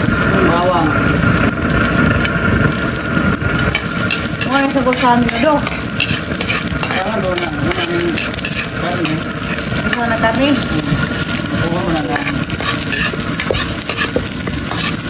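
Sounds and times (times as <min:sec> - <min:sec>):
onion and garlic sizzling: 0:00.0 - 0:15.0
metal ladle scraping a wok: 0:03.7 - 0:15.0.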